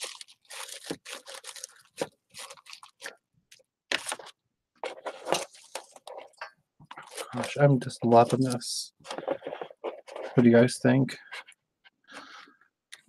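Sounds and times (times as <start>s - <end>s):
paper rustling and crinkling: 0.0s - 10.5s.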